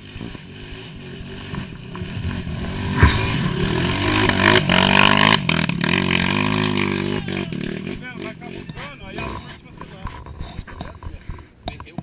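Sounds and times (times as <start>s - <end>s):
dirt bike engine revving: 0.0s - 10.3s.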